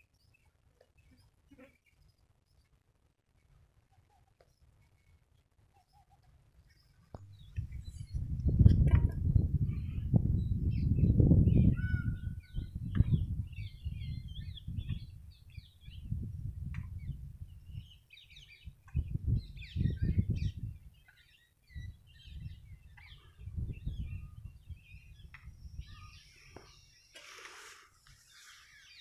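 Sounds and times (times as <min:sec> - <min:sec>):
small birds chirping: 0:00.0 - 0:29.0
wind noise on microphone: 0:07.1 - 0:26.9.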